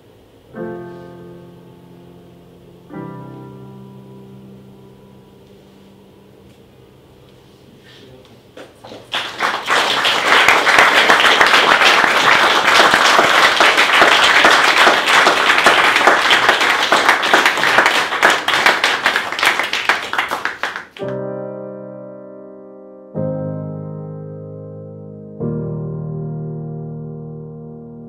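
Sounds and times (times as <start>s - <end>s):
electric piano chords: 0.0s - 7.6s, 9.9s - 28.0s
crowd applauding: 8.8s - 21.1s.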